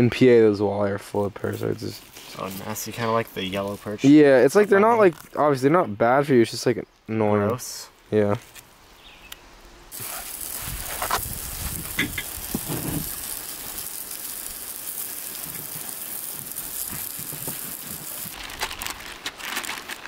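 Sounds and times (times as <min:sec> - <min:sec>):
fish fillets sizzling: 0:09.9 - 0:18.4.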